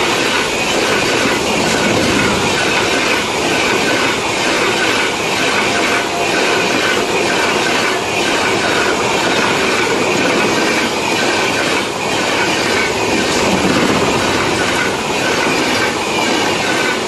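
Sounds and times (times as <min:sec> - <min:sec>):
rhythmic clatter over rail joints: 0:00.0 - 0:17.0
train wheels rushing on rails: 0:00.0 - 0:17.0.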